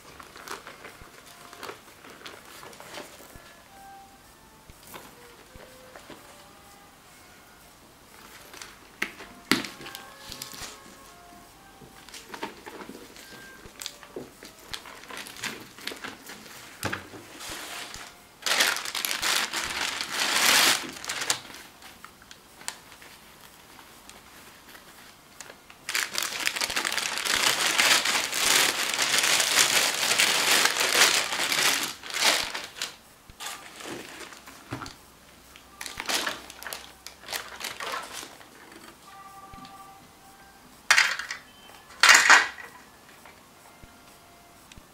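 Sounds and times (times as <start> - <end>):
plastic wrapping crinkling: 0.0 - 4.0, 8.2 - 35.0, 35.6 - 39.8, 40.9 - 42.7.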